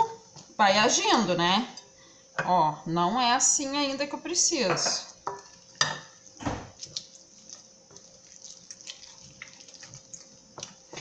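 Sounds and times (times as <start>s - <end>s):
wet squelches of dough: 5.5s - 11.0s.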